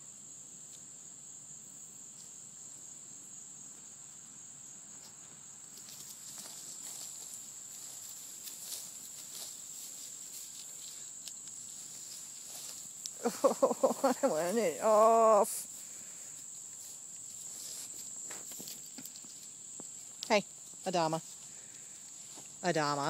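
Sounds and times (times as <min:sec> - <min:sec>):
insects droning: 0:00.0 - 0:23.0
rustling in grass: 0:05.0 - 0:23.0.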